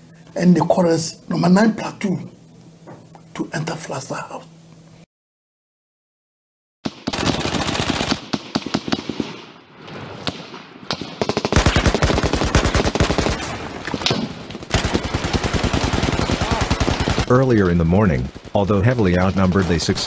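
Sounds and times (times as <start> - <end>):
machine-gun fire: 6.8 - 20.0.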